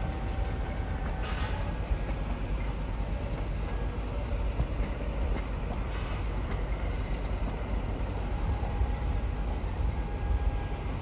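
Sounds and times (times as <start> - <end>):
train rumbling on rails: 0.0 - 11.0
faint rail clicks: 0.1 - 7.8.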